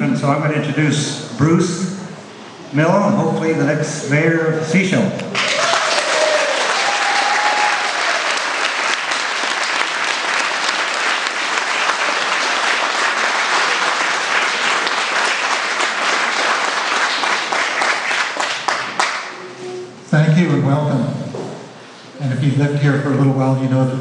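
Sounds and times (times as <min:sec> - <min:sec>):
audience applauding: 0:05.4 - 0:19.4.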